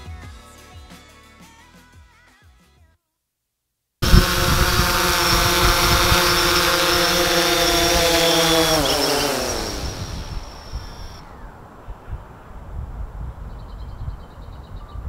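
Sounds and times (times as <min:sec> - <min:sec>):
drone propellers whining: 0:04.0 - 0:11.4.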